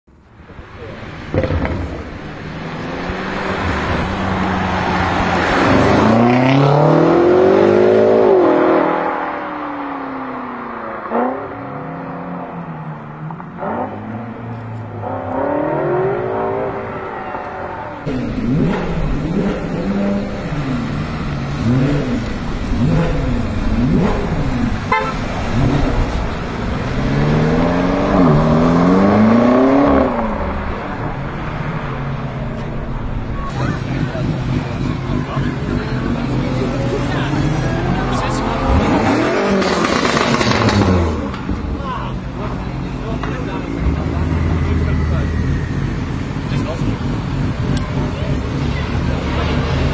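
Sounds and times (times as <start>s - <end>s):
car exhaust revving and accelerating: 0.5s - 49.9s
exhaust pops: 1.3s - 2.2s, 39.5s - 41.8s.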